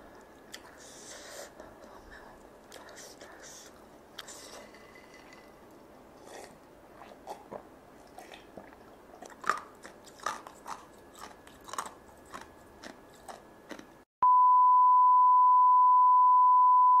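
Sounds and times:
crunchy chewing: 2.3 - 14.0
steady beep tone: 14.2 - 17.0.

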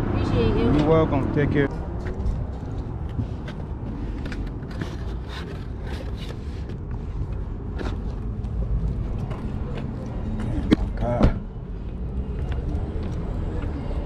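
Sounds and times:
cardboard box scraping: 4.6 - 6.7.

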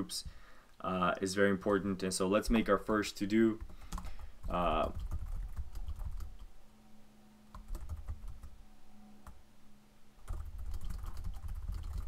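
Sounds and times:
faint steady hum: 0.0 - 12.0
computer keyboard typing: 3.6 - 6.5, 7.5 - 8.5, 10.2 - 12.0.

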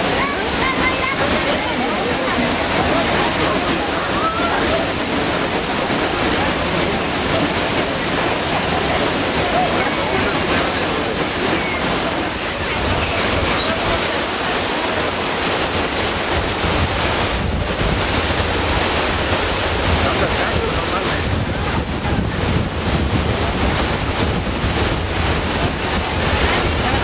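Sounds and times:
waterfall rushing: 0.0 - 27.0
wind noise on microphone: 15.2 - 27.0.

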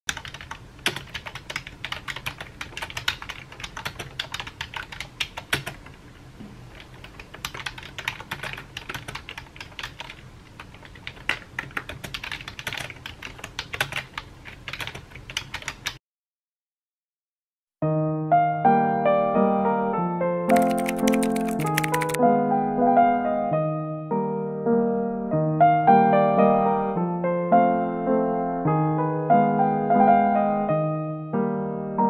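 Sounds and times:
computer keyboard typing: 0.1 - 6.0, 6.7 - 16.0, 20.5 - 22.2.

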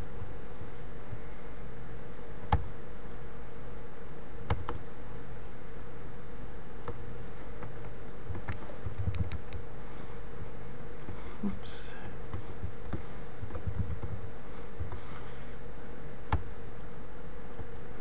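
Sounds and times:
electrical hum and hiss: 0.0 - 18.0
computer mouse clicks: 4.4 - 4.8, 7.6 - 9.6, 16.3 - 16.5.

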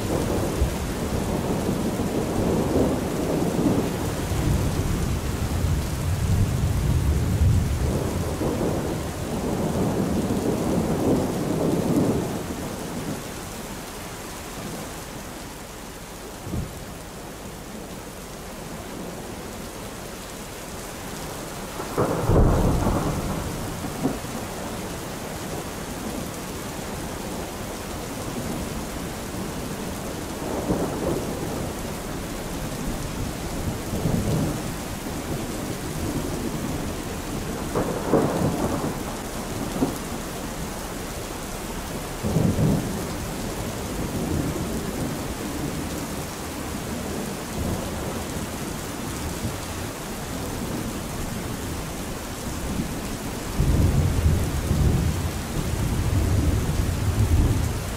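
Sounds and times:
thunder rumbling: 0.0 - 13.2, 21.7 - 24.8, 28.3 - 48.5, 50.3 - 57.9
steady rain: 0.0 - 57.9.

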